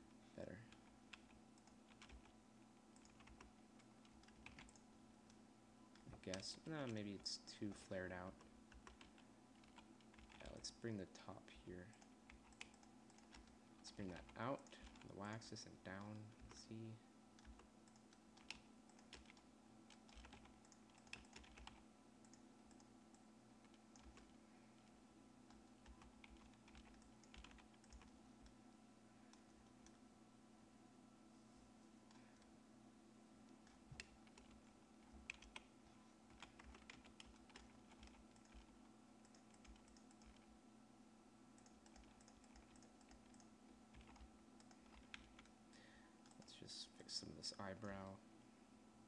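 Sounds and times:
low steady hum: 0:00.0 - 0:49.0
keyboard keys clicking: 0:00.8 - 0:02.3, 0:03.0 - 0:04.8, 0:17.4 - 0:22.9, 0:23.6 - 0:24.3, 0:25.5 - 0:28.6, 0:33.6 - 0:35.7, 0:36.3 - 0:40.5, 0:41.6 - 0:45.5.

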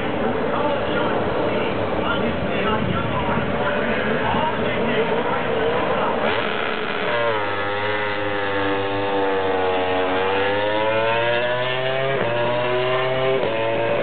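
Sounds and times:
motorcycle engine accelerating past: 0:06.2 - 0:14.0.

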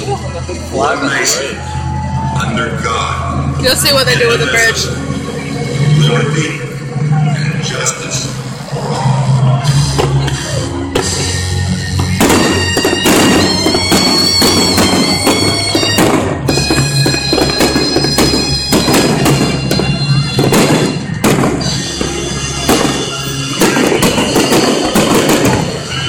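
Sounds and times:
bagpipe-like music with drone: 0:09.3 - 0:26.0
fireworks bursting and crackling: 0:09.6 - 0:26.0.

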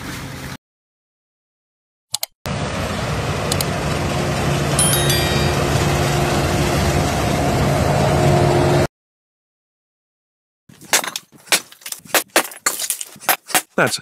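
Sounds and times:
windrower machine drone: 0:02.5 - 0:08.9.

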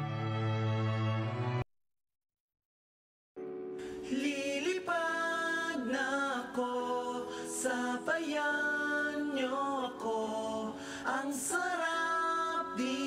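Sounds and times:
person singing long held notes: 0:03.8 - 0:13.0.

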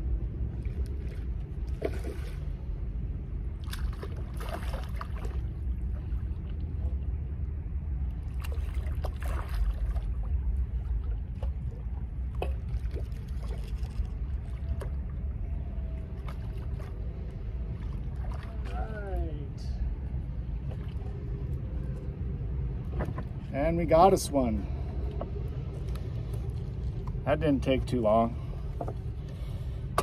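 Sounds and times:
wind rumble on microphone: 0:00.0 - 0:30.0
water splashing: 0:00.5 - 0:02.8, 0:03.6 - 0:07.1, 0:08.2 - 0:19.5.

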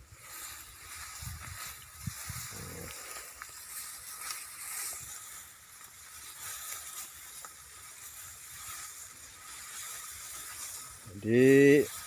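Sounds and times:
rice stalks rustling: 0:00.0 - 0:12.0.

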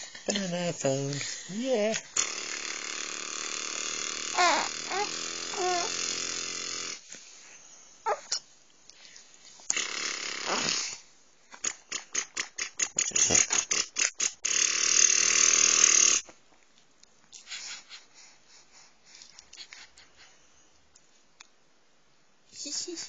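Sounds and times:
baby cooing and squealing: 0:04.4 - 0:06.0, 0:08.1 - 0:08.4
baby quick breathy sounds: 0:17.4 - 0:20.4.

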